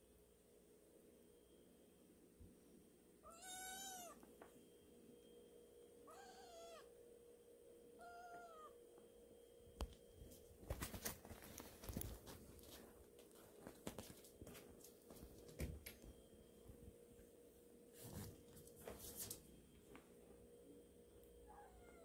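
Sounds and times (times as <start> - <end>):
kitten meowing: 3.2 - 4.2, 6.1 - 6.9, 8.0 - 8.7
rustling: 10.2 - 15.7.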